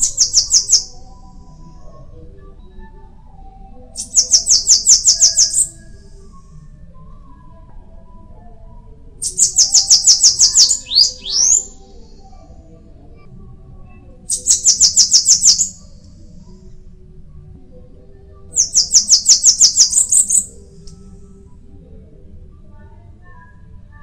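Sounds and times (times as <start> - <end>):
bird singing high thin notes: 9.2 - 11.8, 14.3 - 15.8.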